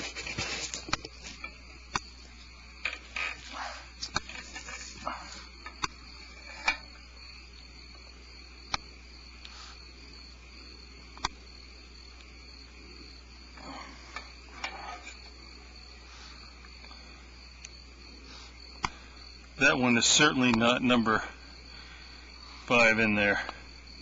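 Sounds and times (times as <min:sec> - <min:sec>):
rustling: 0:00.0 - 0:07.0
insects chirring: 0:00.0 - 0:24.0.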